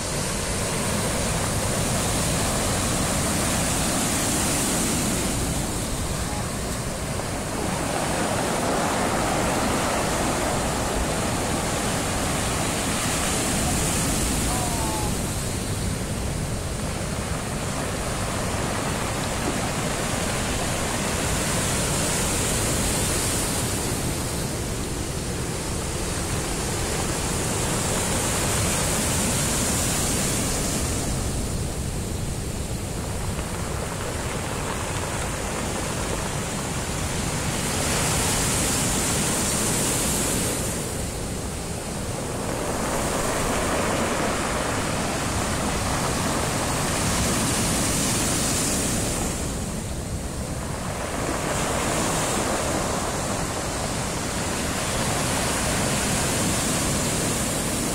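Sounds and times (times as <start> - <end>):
heavy surf breaking: 0.0 - 57.9.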